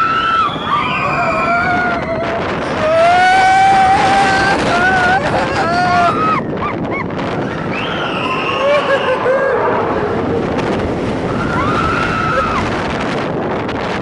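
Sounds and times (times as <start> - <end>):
rushing wind noise: 0.0 - 14.0
riders screaming: 11.3 - 12.8.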